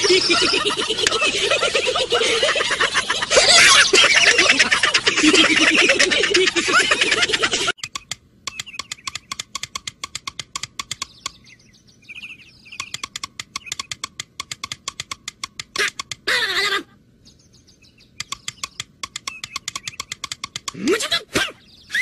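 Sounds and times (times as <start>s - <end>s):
high chattering cartoon voices: 0.0s - 7.8s, 15.7s - 17.0s, 20.0s - 22.0s
quick even ticking: 7.4s - 11.6s, 12.2s - 16.3s, 18.0s - 21.1s.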